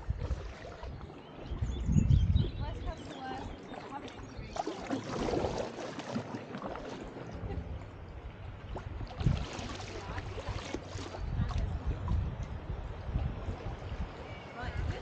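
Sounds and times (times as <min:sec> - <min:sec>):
paddle strokes in water: 0:00.0 - 0:15.0.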